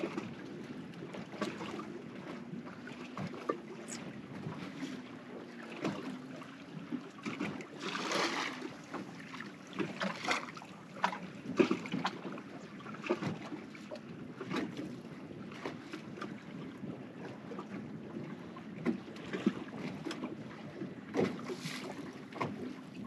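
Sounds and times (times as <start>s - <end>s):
waves lapping against boat hull: 0.0s - 23.0s
water splashing: 1.2s - 13.8s.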